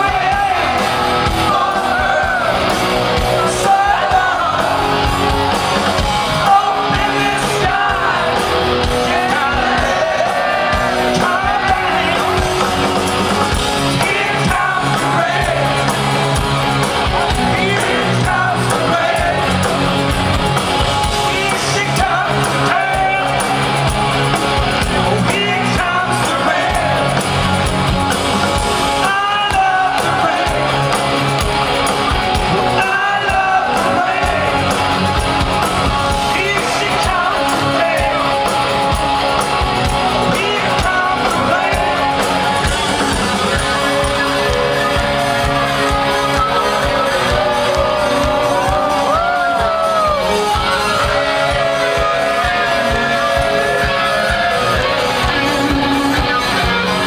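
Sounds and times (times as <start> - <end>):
man singing: 0.0 - 5.1, 6.2 - 12.9, 13.8 - 16.0, 17.2 - 19.8, 21.0 - 23.6, 25.0 - 27.2, 28.8 - 31.0, 32.5 - 34.9, 36.1 - 38.7, 40.2 - 42.6
bass guitar: 0.0 - 57.0
drums: 0.0 - 57.0
electric guitar: 0.0 - 57.0.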